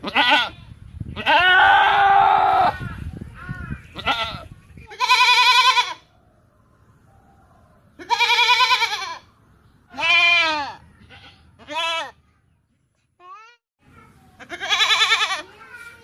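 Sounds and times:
goat bleating: 0.0s - 0.6s, 1.2s - 2.8s, 4.0s - 6.0s, 8.0s - 9.2s, 9.9s - 12.2s, 14.4s - 15.5s.

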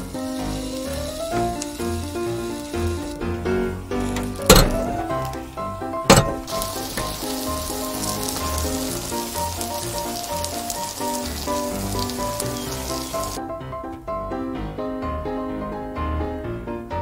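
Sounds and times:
food sizzling in waffle pan: 0.0s - 5.6s, 6.4s - 13.4s
background music: 0.0s - 17.0s
metal pan clank: 4.3s - 5.0s, 6.1s - 7.1s.

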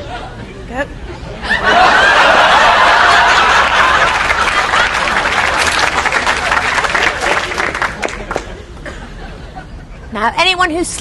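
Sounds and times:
audience laughing: 1.4s - 10.1s
audience clapping: 2.3s - 8.6s.

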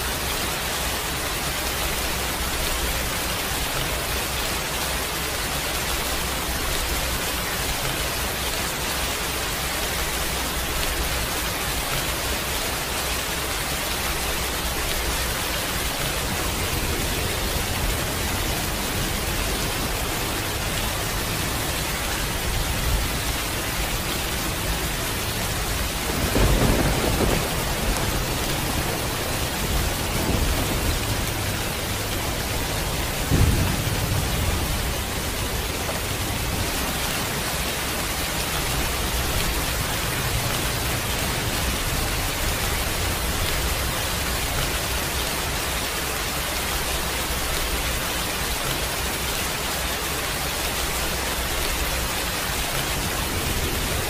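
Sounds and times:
heavy rain falling: 0.0s - 54.0s
thunder rumbling: 9.6s - 45.5s, 50.6s - 54.0s.

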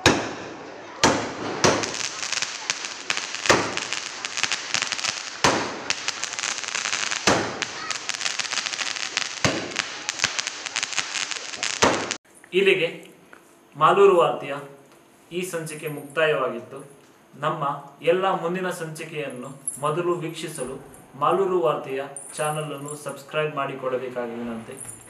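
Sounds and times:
firecracker bangs: 0.0s - 12.2s
rapid crackling: 1.0s - 12.2s.

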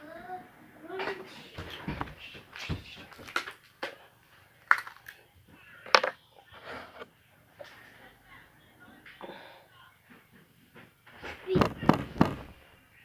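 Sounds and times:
plastic bottle snaps: 4.7s - 5.2s.

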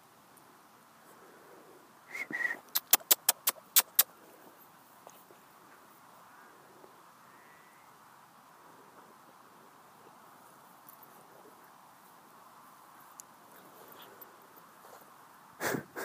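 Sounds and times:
person whistling: 2.1s - 2.7s
sharp clicks: 2.7s - 4.1s.

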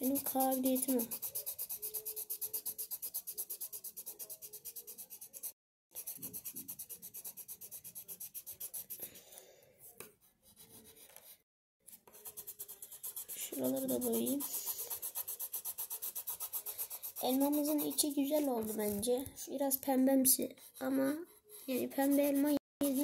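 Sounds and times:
pencil shading on paper: 0.0s - 19.5s, 20.2s - 23.0s.

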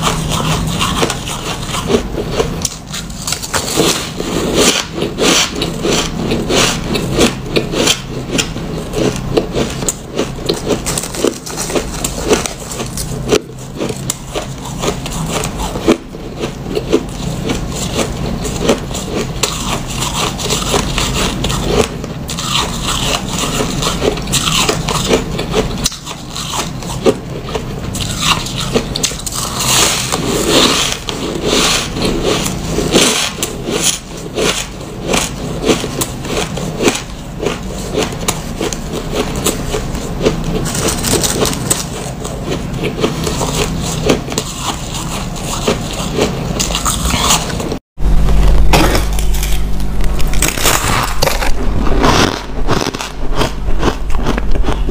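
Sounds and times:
ice crunching while chewed: 0.0s - 47.8s, 48.8s - 54.9s
low hum: 46.4s - 54.9s.

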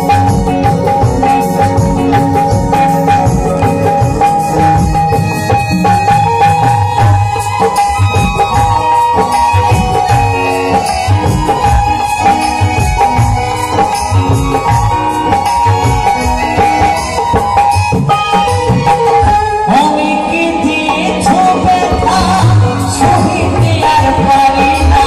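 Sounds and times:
drum beat: 0.0s - 19.3s
live folk band playing: 0.0s - 25.0s
person singing: 18.8s - 25.0s.

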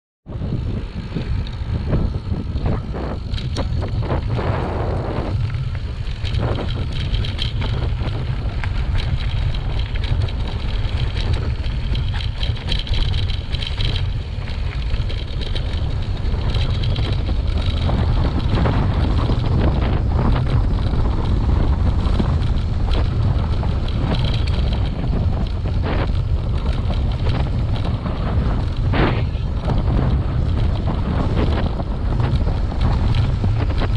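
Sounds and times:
wind buffeting microphone: 0.3s - 33.9s
bike knocks and rattles: 0.4s - 33.9s.

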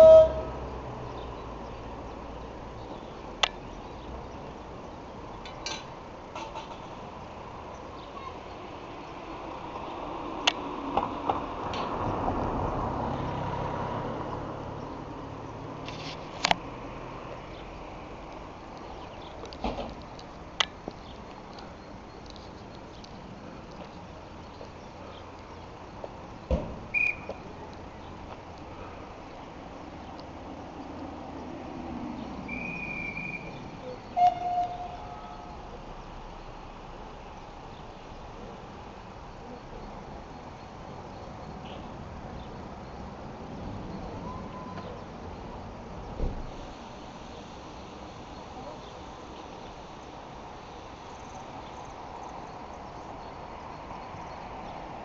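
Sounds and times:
high steady whistle: 0.0s - 0.5s, 26.9s - 27.4s, 32.4s - 35.4s
outdoor background noise: 0.0s - 55.0s
sharp thump: 26.5s - 26.9s.

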